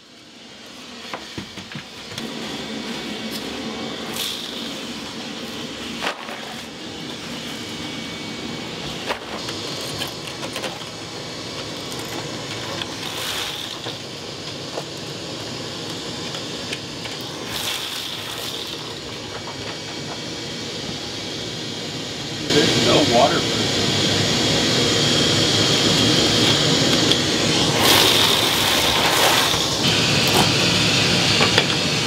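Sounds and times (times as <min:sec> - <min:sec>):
shop vacuum running: 0:00.0 - 0:32.0
debris rattling up vacuum hose: 0:08.7 - 0:20.3, 0:26.4 - 0:30.8.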